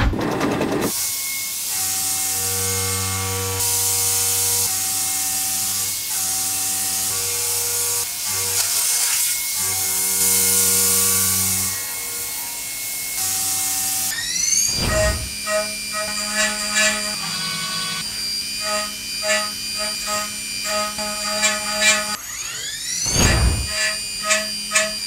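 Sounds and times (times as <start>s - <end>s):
milling machine whine: 8.6s - 25.0s.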